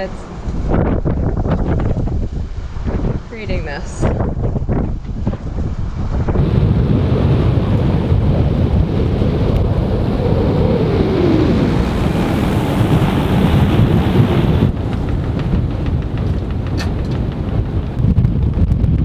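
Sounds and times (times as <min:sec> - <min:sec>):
choppy waves: 0:00.0 - 0:19.0
wind buffeting microphone: 0:00.0 - 0:19.0
faint whine dropping in pitch: 0:06.1 - 0:16.0.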